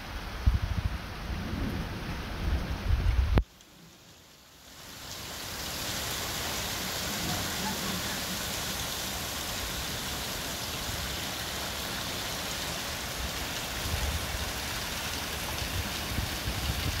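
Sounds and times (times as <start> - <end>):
hail falling on lawn: 3.4 - 17.0.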